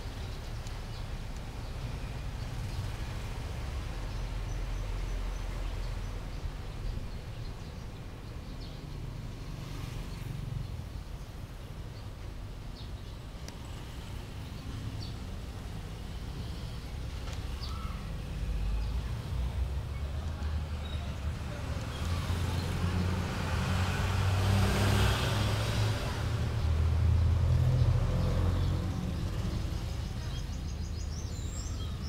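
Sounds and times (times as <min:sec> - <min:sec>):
small birds chirping: 0:03.8 - 0:23.6, 0:27.6 - 0:32.0.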